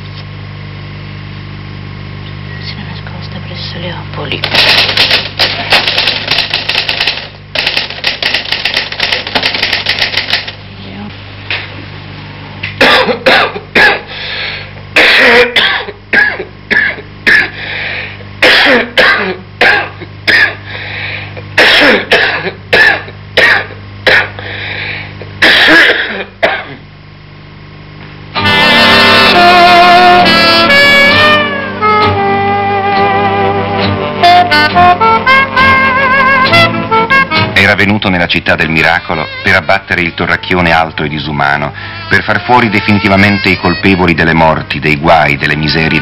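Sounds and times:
steady low hum: 0:00.0 - 0:46.0
typewriter keys clattering: 0:04.4 - 0:10.6
short harsh coughs: 0:12.8 - 0:14.2, 0:15.0 - 0:17.6, 0:18.4 - 0:20.6, 0:21.6 - 0:24.4, 0:25.4 - 0:26.8.

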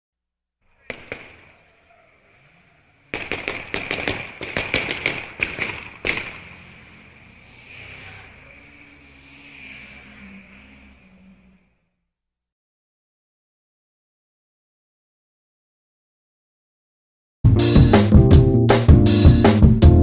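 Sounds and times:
sharp cracks and bangs: 0:00.7 - 0:08.4.

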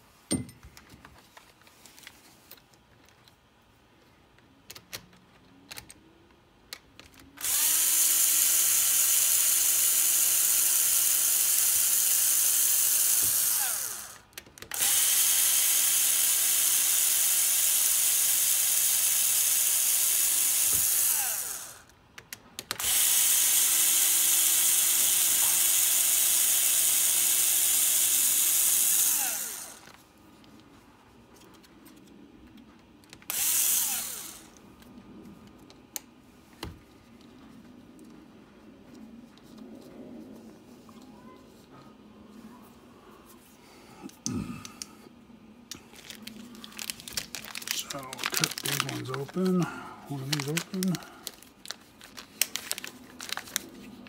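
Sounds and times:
electric screwdriver whining: 0:07.4 - 0:22.0, 0:22.7 - 0:30.0, 0:33.2 - 0:34.6, 0:46.0 - 0:51.4.

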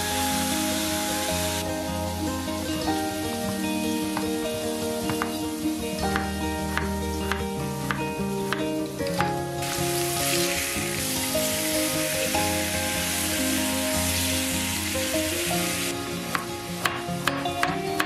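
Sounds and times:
meat sizzling in a pan: 0:00.0 - 0:09.0, 0:09.6 - 0:17.2
knife tapping on cutting board: 0:05.1 - 0:05.4, 0:06.1 - 0:08.6, 0:16.3 - 0:18.0.

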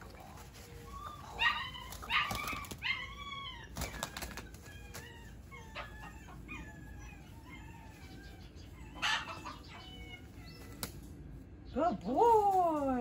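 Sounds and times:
pigeon wings flapping on grass: 0:00.0 - 0:02.9, 0:03.7 - 0:05.2
puppy whimpering: 0:00.1 - 0:10.6.

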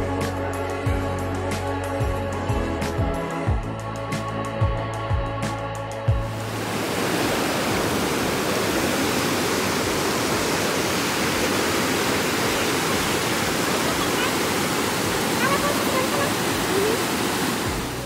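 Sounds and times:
river water rushing over rocks: 0:06.3 - 0:18.0.

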